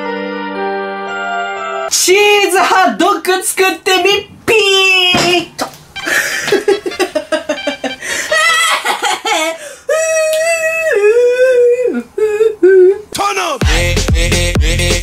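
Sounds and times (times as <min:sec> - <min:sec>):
person singing a silly tune: 0:09.9 - 0:15.0.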